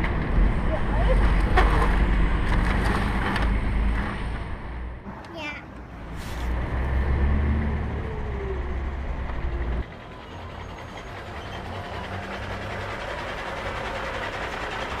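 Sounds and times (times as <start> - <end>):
truck engine rumble with whine: 0.0 - 15.0.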